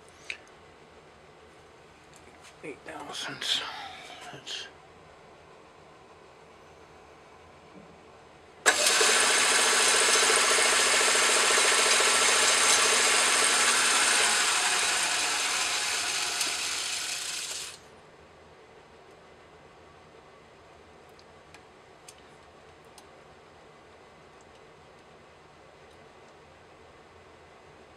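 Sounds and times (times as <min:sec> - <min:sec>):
metal lathe running: 0:08.7 - 0:17.8.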